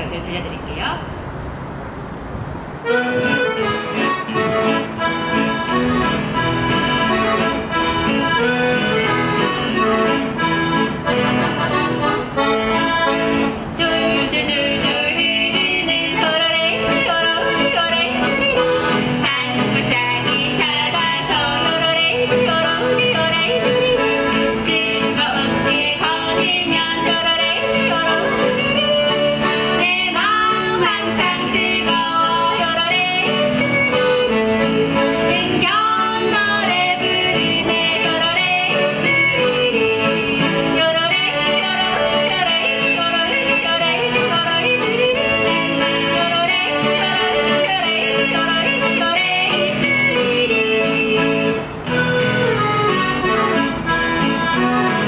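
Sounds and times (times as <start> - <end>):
acoustic guitar: 1.7 - 55.0
piano accordion: 2.8 - 55.0
women singing and yodeling: 11.7 - 55.0.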